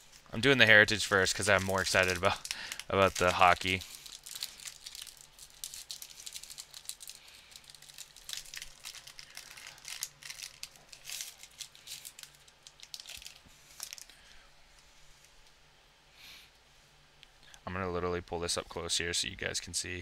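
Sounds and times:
wrapper crinkling: 0.0 - 14.3.

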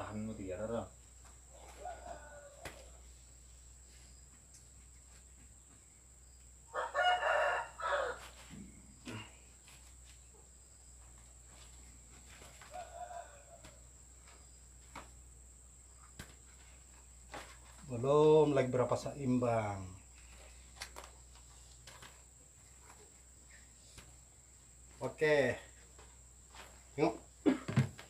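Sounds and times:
rooster crowing: 1.5 - 3.2, 6.7 - 8.5, 12.3 - 14.0.

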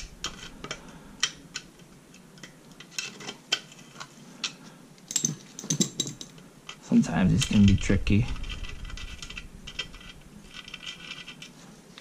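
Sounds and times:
screwdriver clicking and scraping metal: 6.7 - 11.6.

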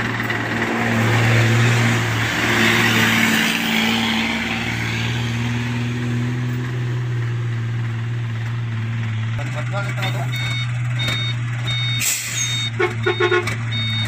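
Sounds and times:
dump truck driving past: 0.0 - 9.4
diesel engine idling: 7.0 - 14.0.

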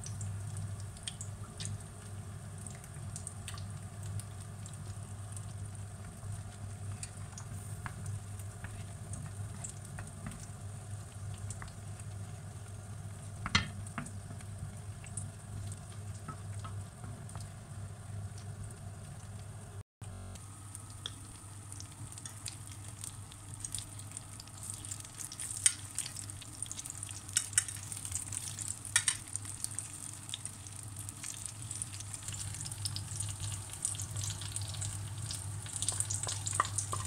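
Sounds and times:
sauce sizzling in a frying pan: 0.0 - 19.5, 20.5 - 37.0
wooden spoon stirring: 7.0 - 10.6.

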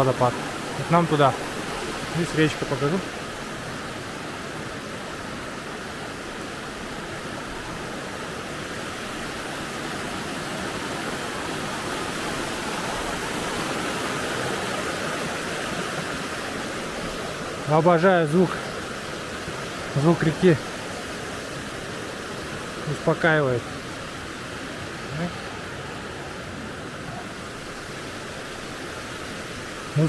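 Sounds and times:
river rushing over stones: 0.0 - 30.0.

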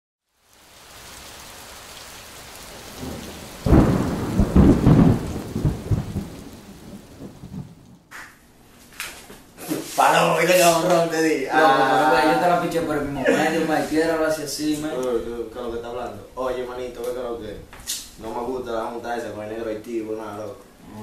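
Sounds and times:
steady rain: 0.2 - 8.1, 10.0 - 21.0
thunder rumbling: 1.8 - 8.1.

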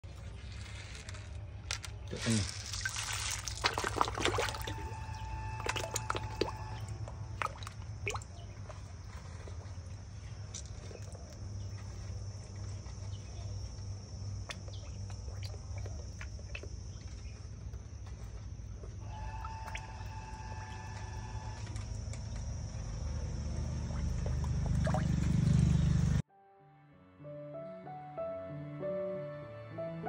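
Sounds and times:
fish splashing at water surface: 2.2 - 9.1, 23.4 - 25.6
held tonal call: 4.6 - 7.2.

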